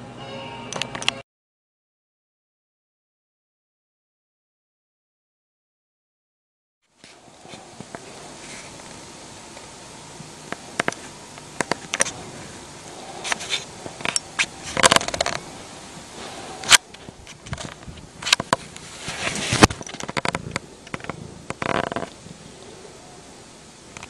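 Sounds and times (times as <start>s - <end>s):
duvet rustling and scraping: 6.9s - 22.9s
microphone handling noise: 10.5s - 22.5s.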